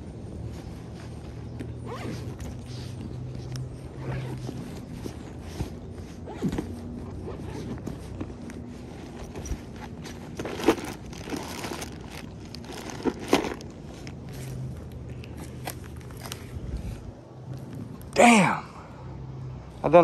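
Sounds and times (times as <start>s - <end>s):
fabric rustling: 0.3s - 14.9s
scraping in backpack: 0.5s - 14.7s
zipper sounds: 0.8s - 14.6s.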